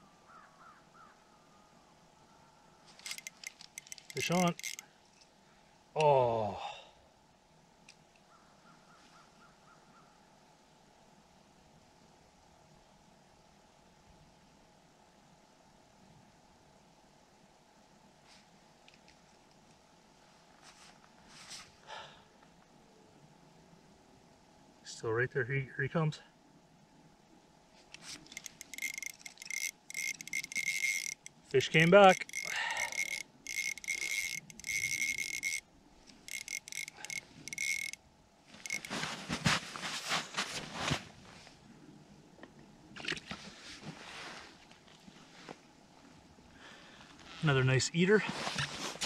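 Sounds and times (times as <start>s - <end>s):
fishing reel whirring: 3.0s - 4.8s, 28.2s - 38.0s, 38.6s - 39.0s.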